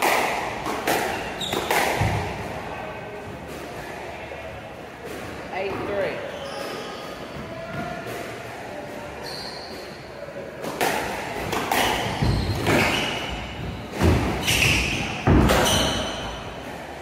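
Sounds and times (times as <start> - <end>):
squash racket strikes: 0.0 - 2.6, 10.6 - 16.8.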